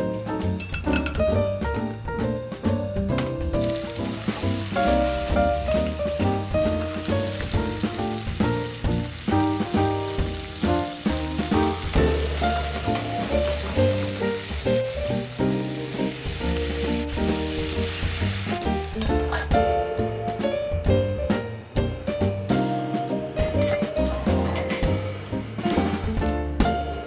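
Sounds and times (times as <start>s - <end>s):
background music with bass line: 0.0s - 27.0s
food sizzling in frying pan: 3.5s - 19.6s.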